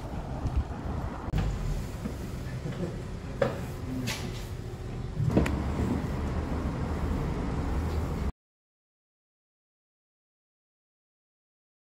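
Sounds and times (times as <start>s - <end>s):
low rumble of street traffic: 0.0s - 8.3s.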